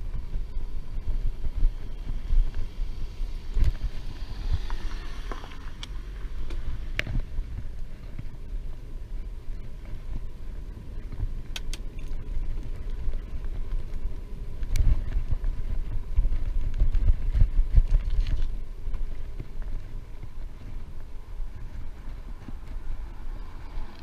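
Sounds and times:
wind buffeting microphone: 0:00.0 - 0:24.0
sharp clicks: 0:11.5 - 0:12.2.

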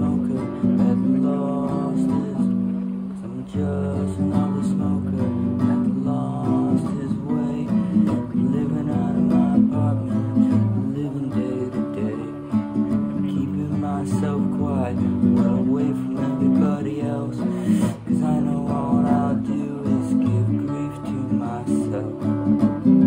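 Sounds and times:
classical guitar strumming chords: 0:00.0 - 0:23.0.

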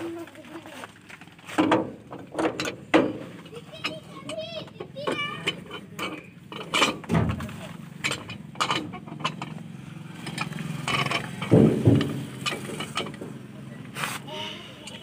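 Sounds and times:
metal knocks and clanks: 0:01.5 - 0:13.4
low engine hum: 0:05.5 - 0:15.0
loud thumps: 0:11.0 - 0:13.4.

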